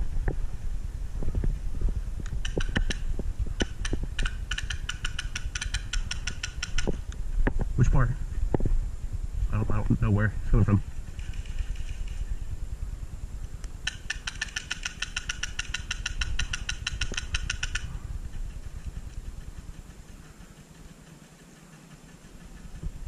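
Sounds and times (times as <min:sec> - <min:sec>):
low microphone rumble: 0:00.0 - 0:04.5, 0:06.7 - 0:13.9, 0:16.2 - 0:20.4
airsoft rifle rapid shots: 0:03.6 - 0:06.9, 0:13.8 - 0:17.8.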